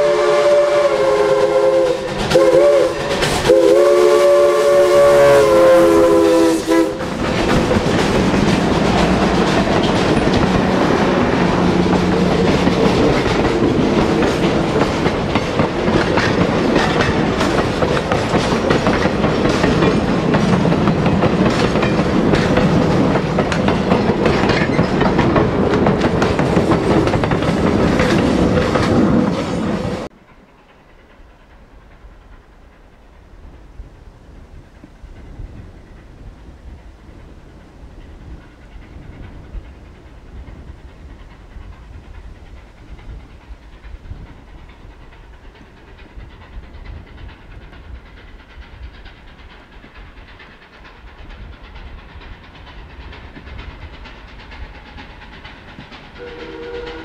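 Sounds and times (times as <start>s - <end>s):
steam locomotive whistle: 0.0s - 7.2s, 56.2s - 57.0s
train wheels clicking over rail joints: 0.0s - 57.0s.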